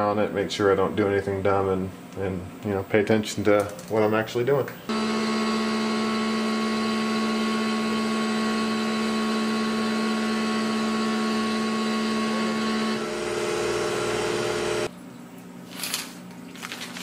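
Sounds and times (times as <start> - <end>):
milling machine whine: 4.9 - 14.9
steady machine hum: 4.9 - 14.9.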